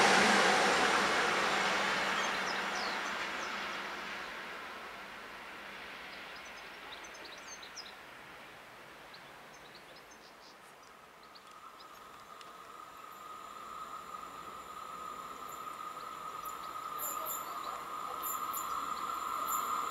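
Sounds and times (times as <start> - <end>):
steady high whine: 0.0 - 6.0, 11.5 - 19.9
passing train rumble: 0.0 - 9.5, 11.1 - 19.9
birds chirping: 2.0 - 3.9, 9.1 - 19.9.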